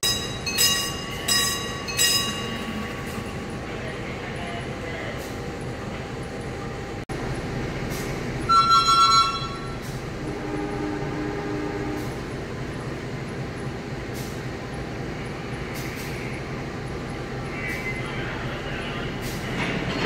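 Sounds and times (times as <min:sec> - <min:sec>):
diesel train rumbling: 0:00.0 - 0:20.0
train horn blast: 0:08.5 - 0:12.2.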